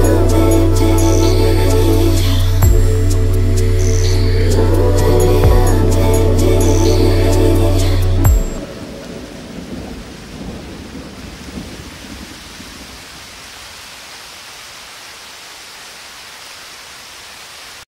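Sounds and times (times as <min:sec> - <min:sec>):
music: 0:00.0 - 0:08.7
low thunder rumble: 0:00.0 - 0:13.1
hiss of rain: 0:00.0 - 0:17.9.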